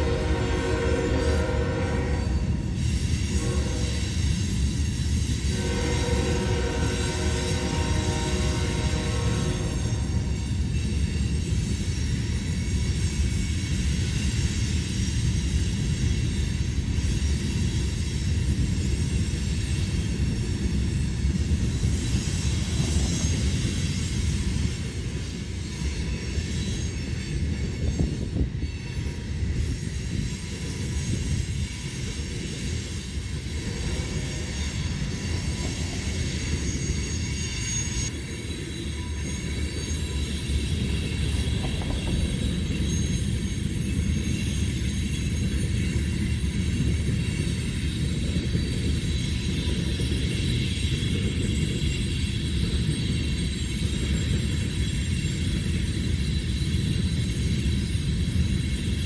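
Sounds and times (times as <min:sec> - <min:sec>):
freight train rumbling past: 0:00.0 - 0:59.0
high-pitched wheel squeal: 0:20.9 - 0:47.9.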